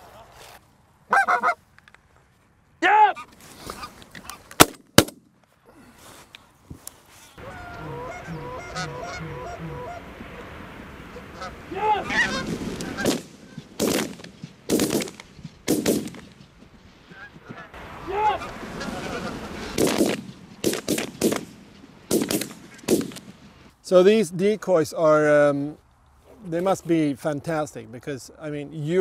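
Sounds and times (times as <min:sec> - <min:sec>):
geese honking: 0:01.1 - 0:01.6, 0:07.4 - 0:13.8, 0:17.0 - 0:19.8.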